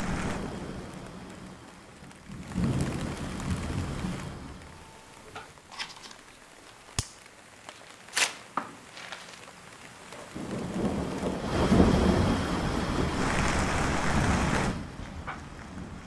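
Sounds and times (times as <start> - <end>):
thunder rumble: 0.0 - 5.7, 10.3 - 16.0.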